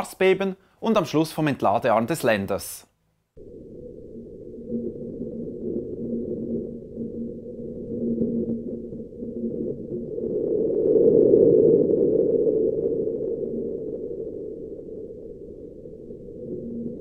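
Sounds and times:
low hiss of ground vibration: 0:03.4 - 0:10.4.

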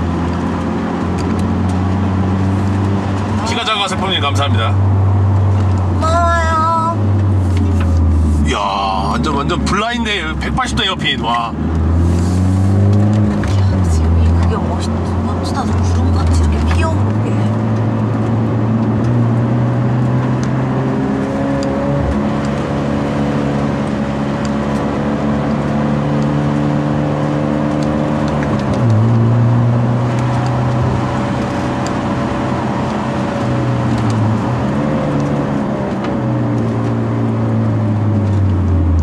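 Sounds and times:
car engine running: 0:00.0 - 0:39.0.

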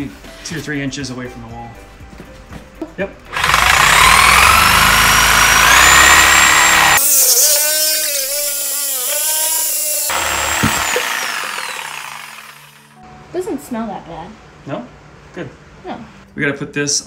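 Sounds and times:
reciprocating saw cutting pipe: 0:03.3 - 0:13.0.

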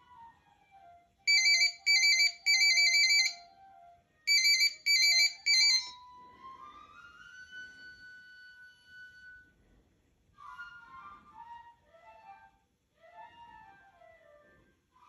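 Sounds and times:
flip phone ringing: 0:01.3 - 0:03.4, 0:04.3 - 0:06.0
soft background music: 0:05.9 - 0:09.6, 0:10.4 - 0:15.0.

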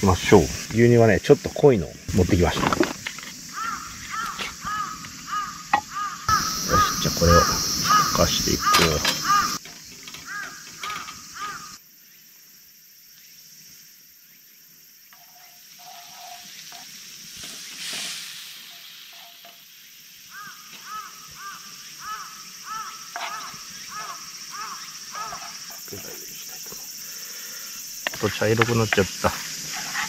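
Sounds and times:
milk sizzling and bubbling in pan: 0:15.1 - 0:30.0
wooden spatula stirring: 0:15.2 - 0:16.8, 0:23.1 - 0:24.2, 0:25.2 - 0:26.0, 0:28.0 - 0:30.0.

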